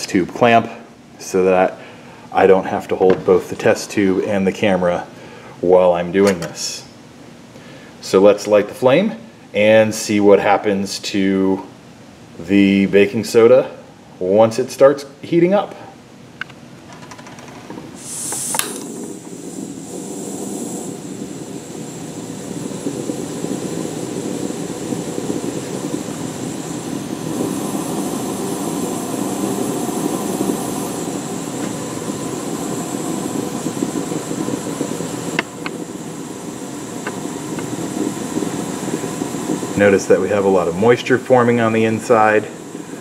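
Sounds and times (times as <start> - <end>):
gas hissing: 0.0 - 16.0, 17.1 - 43.0
burner click: 6.2 - 6.6, 16.4 - 43.0
gas flame rushing: 17.0 - 43.0.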